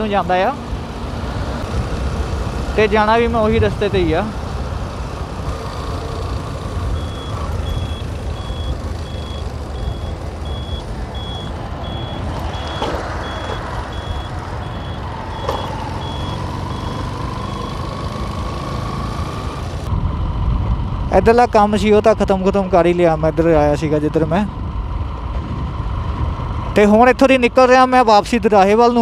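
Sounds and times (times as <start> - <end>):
motorcycle engine rumble: 0.0 - 27.2
turn-signal buzzer beeping: 6.9 - 17.9.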